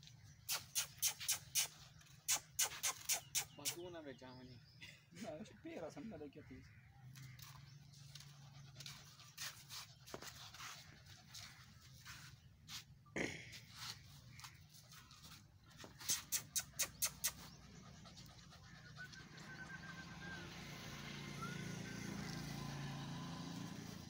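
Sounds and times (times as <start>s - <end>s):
small dog panting: 7.8s - 12.4s, 13.8s - 19.9s.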